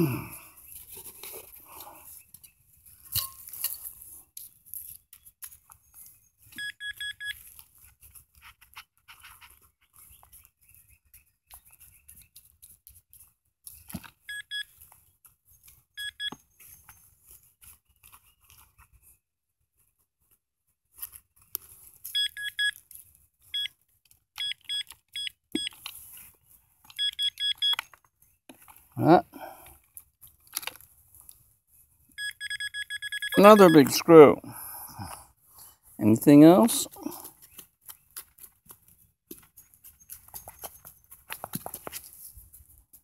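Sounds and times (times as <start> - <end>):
hand scraping loose soil: 0.0 - 6.5
rapid high beeps: 32.2 - 34.1.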